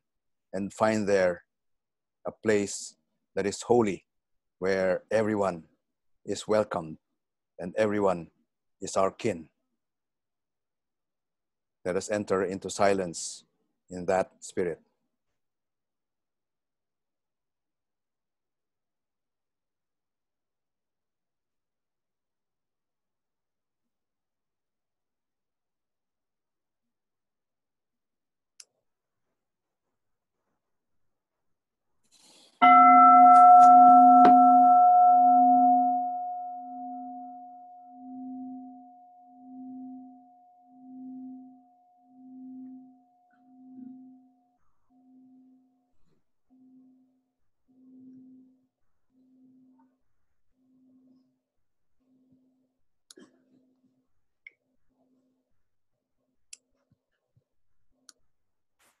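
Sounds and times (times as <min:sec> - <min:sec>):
meditation bowl bell ringing: 0:32.6 - 0:45.8.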